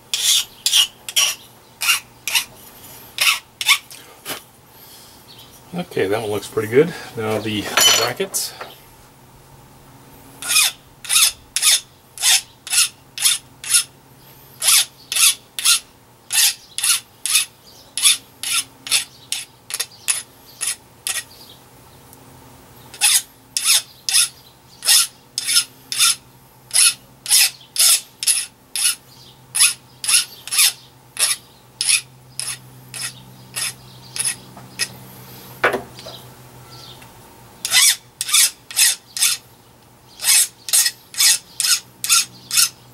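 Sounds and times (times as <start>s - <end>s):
hand file rasping on metal: 0.1s - 2.6s, 3.2s - 3.8s, 10.4s - 13.9s, 14.6s - 21.3s, 23.0s - 29.0s, 29.6s - 34.9s, 37.6s - 39.4s, 40.2s - 42.7s.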